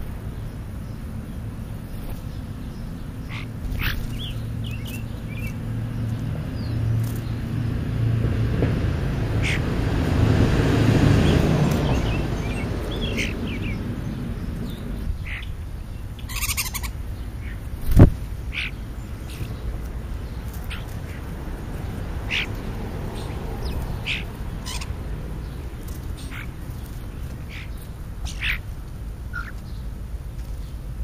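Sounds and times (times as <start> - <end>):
birds chirping: 0.0 - 31.0
steady low rumble: 0.0 - 31.0
vehicle driving past: 1.5 - 15.1, 16.6 - 27.7.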